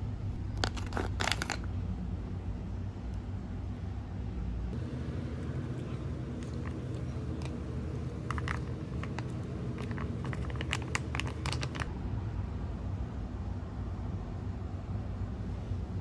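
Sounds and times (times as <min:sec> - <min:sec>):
foil pouch crinkling: 0:00.6 - 0:01.7, 0:04.8 - 0:11.9
low hum: 0:01.7 - 0:16.0.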